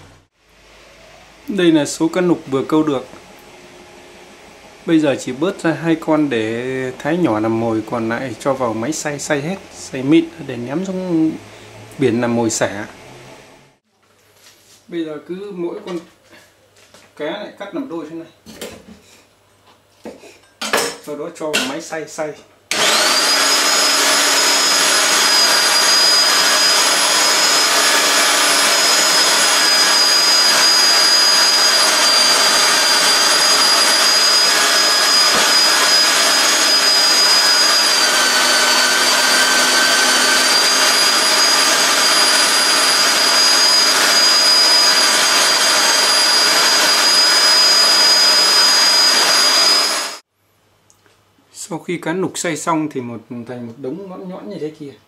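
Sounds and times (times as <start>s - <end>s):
electric meat mincer whining: 22.7s - 50.2s.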